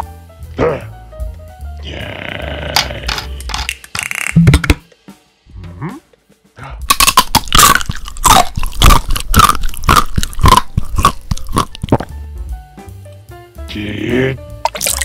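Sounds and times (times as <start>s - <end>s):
crunchy chewing: 6.8s - 12.1s.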